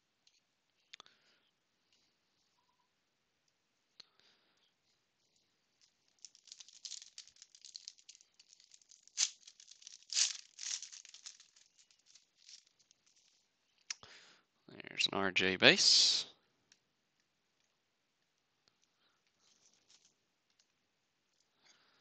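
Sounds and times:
foil wrapper crinkling and tearing: 5.8s - 13.4s.

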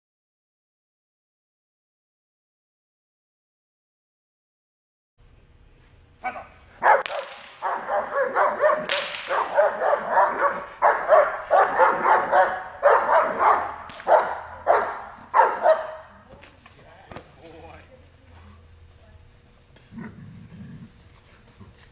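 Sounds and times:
dog barking: 6.2s - 16.2s.

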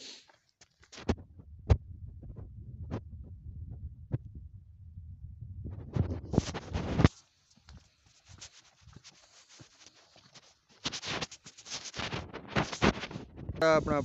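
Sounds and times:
footsteps on dirt path: 6.0s - 13.6s.

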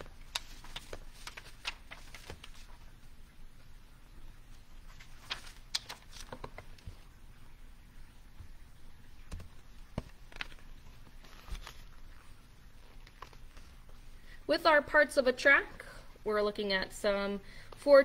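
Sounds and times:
book pages being leafed through: 0.0s - 2.9s, 4.9s - 7.0s, 9.9s - 14.0s
low room hum: 0.0s - 18.0s.

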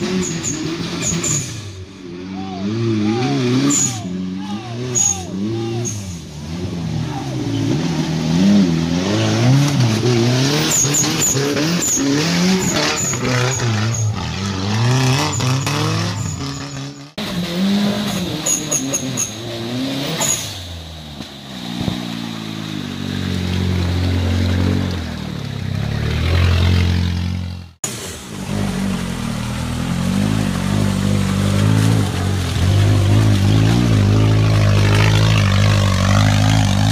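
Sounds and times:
engine revving hard: 4.8s - 20.5s, 25.8s - 36.9s
wheels spinning in mud: 21.0s - 36.9s.

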